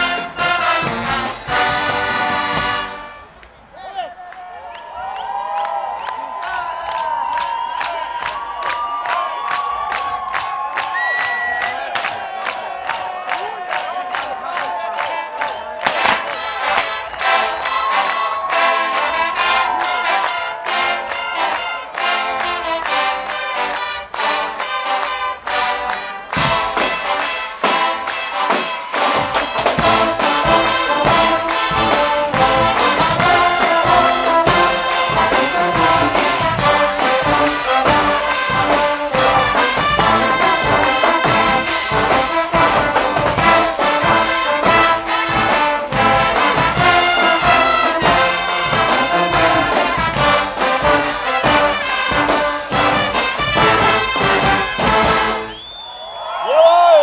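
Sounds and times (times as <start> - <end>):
drums and cymbals: 0.0 - 3.2, 26.3 - 55.8
brass band playing: 0.0 - 3.6, 15.0 - 55.7.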